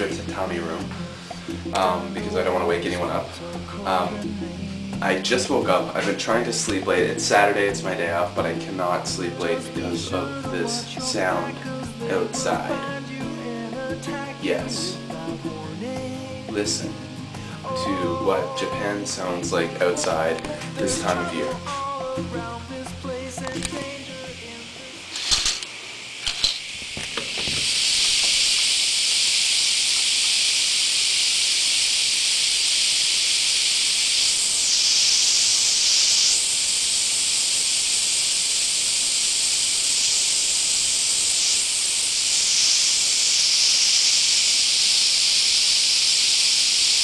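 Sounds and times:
cicadas buzzing: 0.0s - 47.0s.

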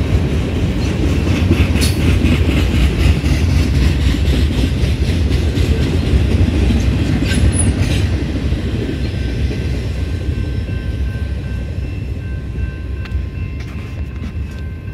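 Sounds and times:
freight train rumbling past: 0.0s - 14.9s
high ringing tones: 9.0s - 14.9s.

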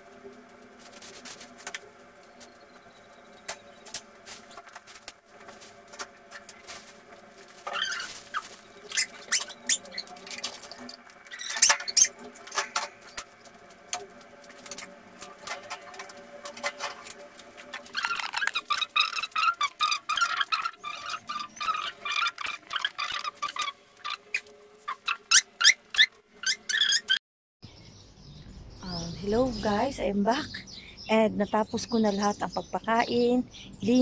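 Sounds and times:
plastic clicks and rustles: 0.0s - 20.0s
short squeaks: 7.6s - 13.3s, 17.6s - 27.2s.

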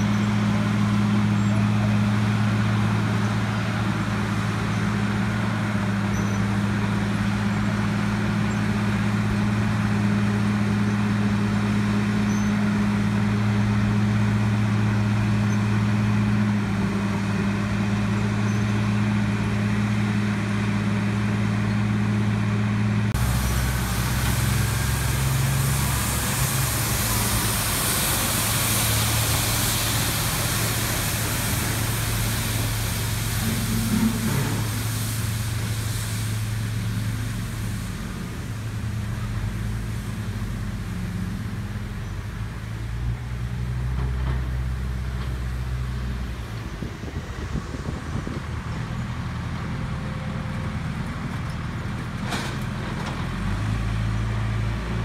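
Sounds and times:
diesel machinery droning: 0.0s - 55.0s
street sweeper engine: 0.0s - 55.0s
sweeper brushes hissing: 23.2s - 39.0s.

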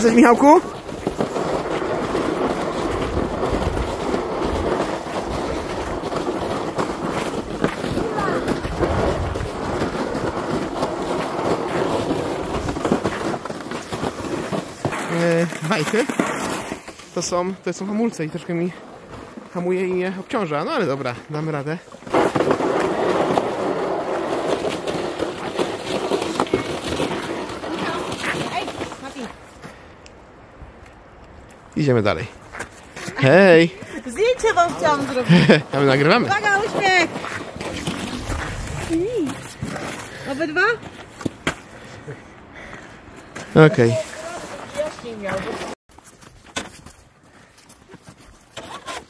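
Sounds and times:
sled runners scraping on ice: 0.0s - 29.9s, 32.1s - 49.0s
footsteps crunching on snow: 32.4s - 41.4s.

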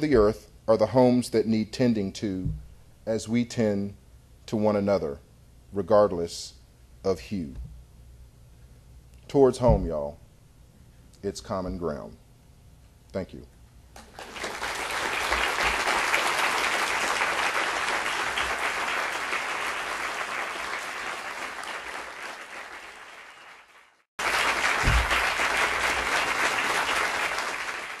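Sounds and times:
low thumps: 2.4s - 2.9s, 9.6s - 10.2s, 24.8s - 25.5s
audience applauding: 14.0s - 28.0s.

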